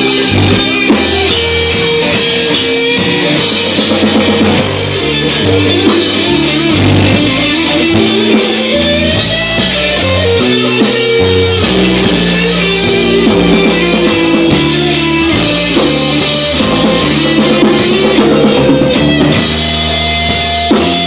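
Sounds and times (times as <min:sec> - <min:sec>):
bass line: 0:00.0 - 0:21.0
electric guitars: 0:00.0 - 0:21.0.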